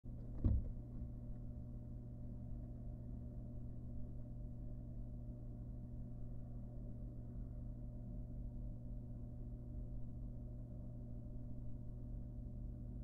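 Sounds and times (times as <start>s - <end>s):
steady low hum: 0.1s - 13.0s
dull knock: 0.3s - 0.9s.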